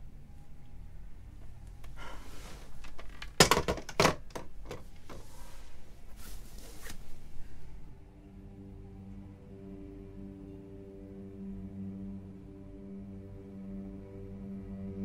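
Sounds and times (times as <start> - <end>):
small knocks: 2.9 - 5.2
telephone handset clattering down: 3.3 - 4.8
bedding rustling: 4.6 - 7.8.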